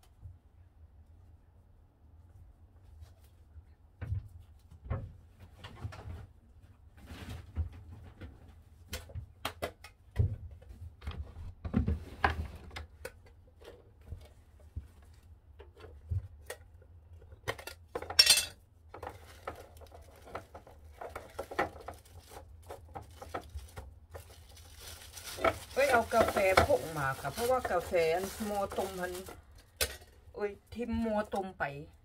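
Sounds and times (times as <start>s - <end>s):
dishes and utensils clinking: 18.0s - 18.6s.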